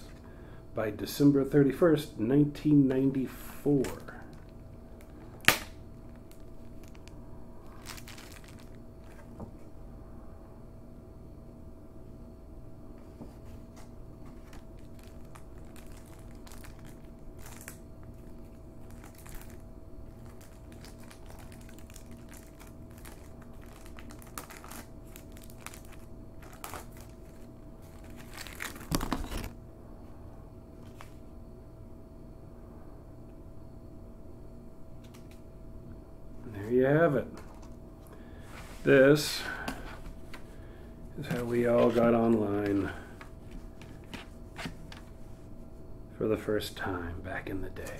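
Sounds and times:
paper and plastic wrap crinkling: 6.1s - 9.4s, 14.2s - 29.5s, 41.2s - 45.1s.

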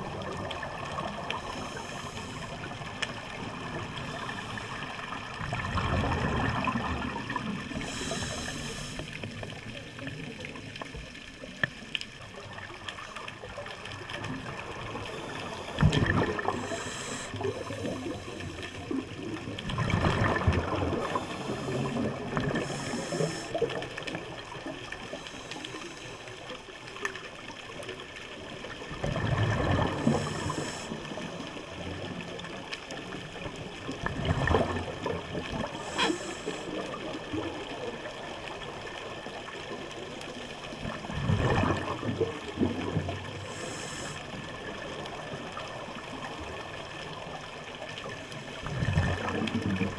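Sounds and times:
exhaled bubbles gurgling: 0.0s - 49.9s
regulator hissing inhalations: 7.8s - 9.1s, 16.6s - 18.6s, 22.6s - 23.6s, 30.2s - 30.9s, 35.8s - 36.7s, 43.4s - 44.2s.

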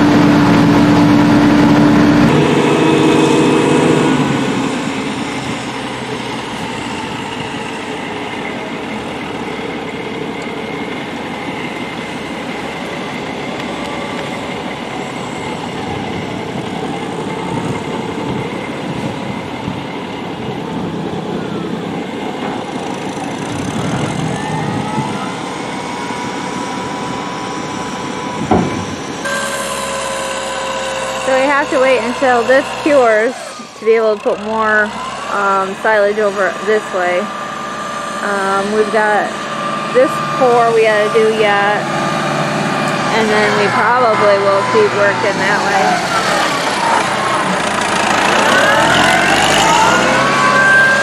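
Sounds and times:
machine whine: 0.0s - 51.0s
tractor running: 0.0s - 51.0s
truck engine and machinery: 0.0s - 51.0s
sharp knock: 28.5s - 28.9s.

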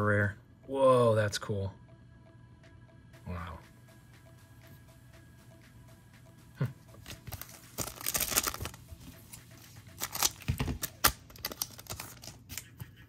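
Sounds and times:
foil wrapper crinkling: 7.3s - 8.8s, 10.0s - 12.5s.

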